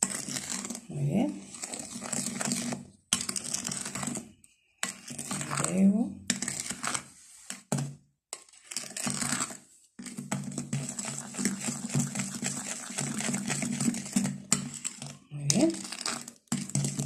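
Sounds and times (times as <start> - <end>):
spoon scraping glass bowl: 0.0 - 7.7, 8.4 - 17.0.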